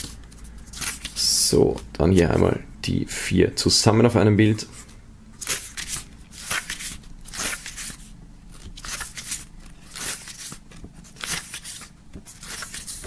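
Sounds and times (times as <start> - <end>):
paper pages flipping: 0.0 - 1.8, 4.8 - 13.0.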